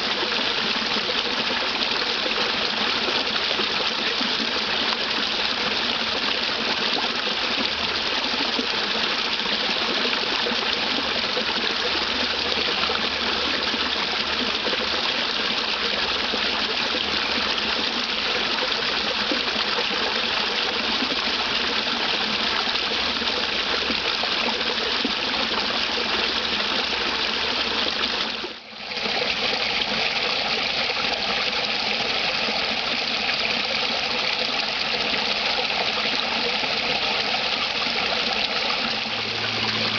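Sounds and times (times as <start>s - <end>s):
water rushing over waterfall: 0.0s - 39.9s.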